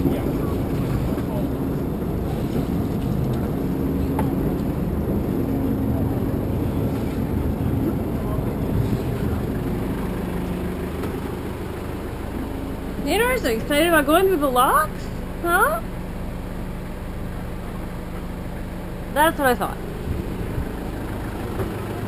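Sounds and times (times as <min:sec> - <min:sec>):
water rushing and churning: 0:00.0 - 0:15.6
low hum: 0:00.0 - 0:22.0.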